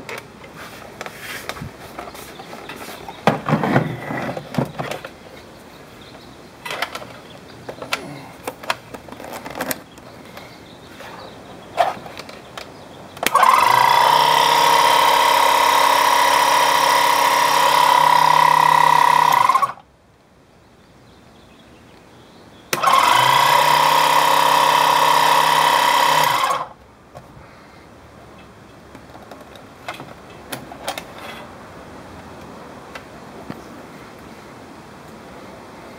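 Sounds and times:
handling clicks and knocks: 0:06.6 - 0:10.5
air compressor whining: 0:13.2 - 0:19.8, 0:22.7 - 0:26.8.

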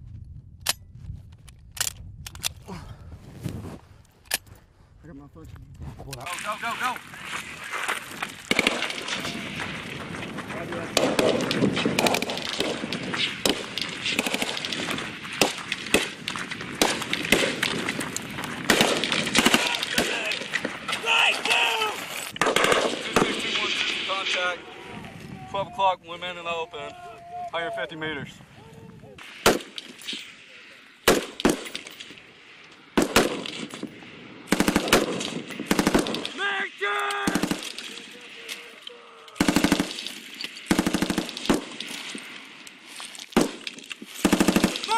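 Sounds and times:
machine-gun bursts: 0:08.5 - 0:09.3, 0:18.7 - 0:20.5, 0:34.5 - 0:36.4, 0:37.2 - 0:38.0, 0:39.4 - 0:41.8, 0:44.2 - 0:44.9
gunfire shots: 0:08.5 - 0:21.5, 0:22.4 - 0:24.5, 0:29.2 - 0:30.3, 0:31.0 - 0:32.1, 0:33.0 - 0:36.4, 0:37.2 - 0:38.4, 0:39.4 - 0:42.3, 0:43.3 - 0:44.9
person shouting: 0:21.0 - 0:22.1, 0:26.6 - 0:27.8, 0:28.6 - 0:29.2, 0:36.4 - 0:37.4.

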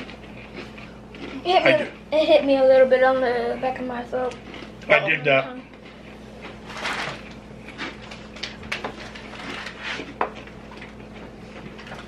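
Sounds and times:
crunchy snack being chewed: 0:00.0 - 0:02.0, 0:04.3 - 0:05.0, 0:05.7 - 0:12.0.

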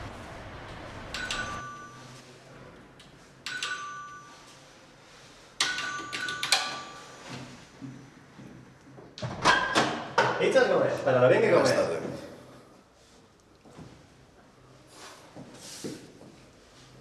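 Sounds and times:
two-tone doorbell chime: 0:01.1 - 0:02.2, 0:03.5 - 0:04.5, 0:05.7 - 0:07.3.

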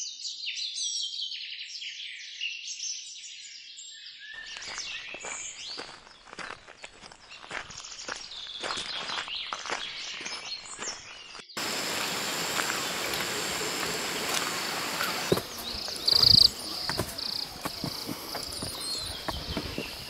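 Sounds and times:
footsteps on dirt path: 0:04.5 - 0:20.0
high insect buzz: 0:11.6 - 0:20.0
steady outdoor hiss: 0:11.6 - 0:20.0.

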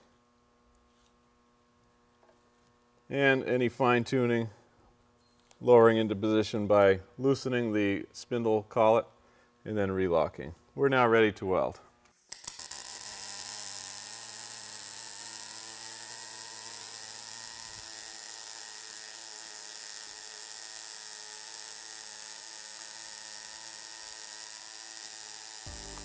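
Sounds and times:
welding arc clicks: 0:12.1 - 0:26.0
welding arc hissing: 0:12.2 - 0:26.0.

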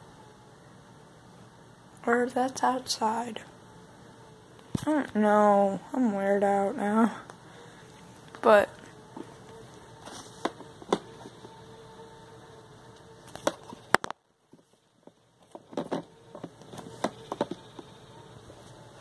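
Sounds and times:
faint electronic hum: 0:00.0 - 0:19.0
clicks and knocks of handling: 0:12.9 - 0:17.9.

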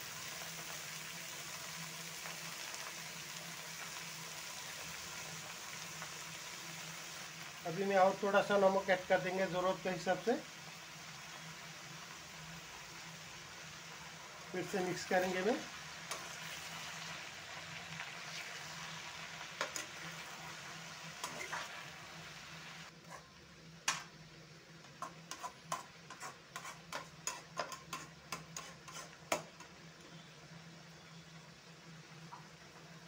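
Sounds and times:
frying sizzle: 0:00.0 - 0:33.0
metal spatula scraping pan: 0:21.2 - 0:21.8, 0:25.0 - 0:29.7.

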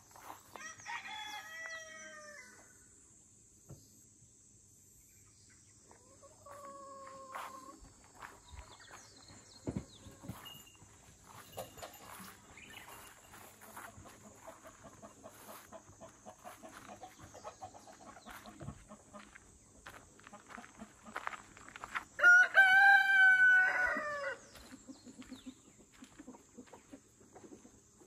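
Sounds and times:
rooster crowing: 0:00.5 - 0:02.7, 0:22.2 - 0:24.5.

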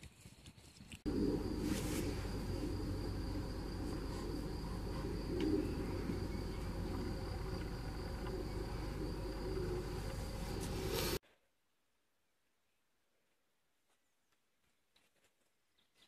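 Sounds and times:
cricket chirping: 0:01.1 - 0:11.2
low outdoor rumble: 0:01.1 - 0:11.2.

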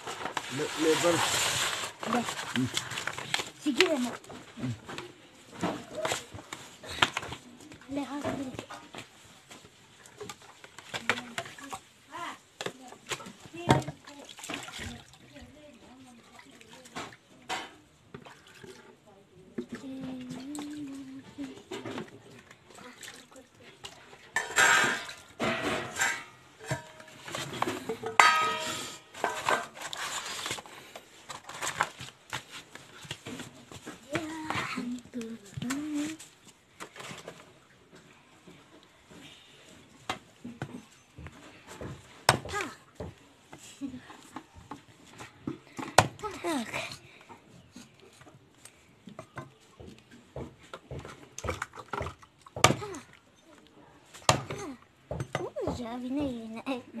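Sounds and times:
steel plate clanging: 0:24.4 - 0:27.1, 0:28.0 - 0:29.8.

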